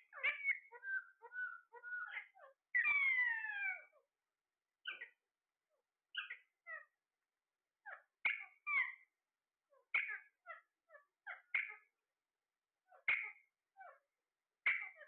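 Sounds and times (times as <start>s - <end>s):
parakeets calling: 0.1s - 4.0s, 4.8s - 5.1s, 6.2s - 6.8s, 8.2s - 9.0s, 9.9s - 10.3s, 11.3s - 11.8s, 12.9s - 14.0s, 14.6s - 15.0s.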